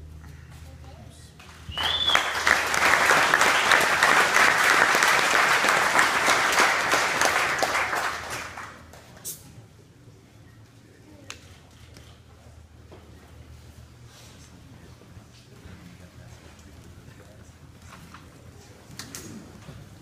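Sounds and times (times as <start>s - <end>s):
audience applauding: 1.4s - 9.0s
short whistle: 1.7s - 2.4s.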